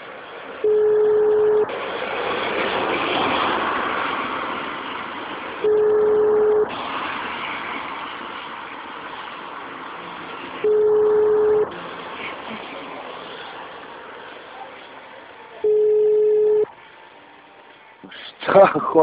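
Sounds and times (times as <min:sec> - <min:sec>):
phone line hiss: 0:00.6 - 0:01.7, 0:05.6 - 0:06.7, 0:10.6 - 0:11.8, 0:15.6 - 0:16.7
telephone ringback beep: 0:00.6 - 0:01.7, 0:05.6 - 0:06.7, 0:10.7 - 0:11.7, 0:15.6 - 0:16.7.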